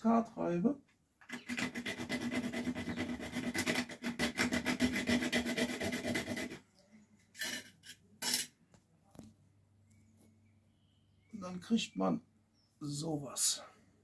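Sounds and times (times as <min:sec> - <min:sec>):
wood rasping on metal grater: 0:01.3 - 0:06.6.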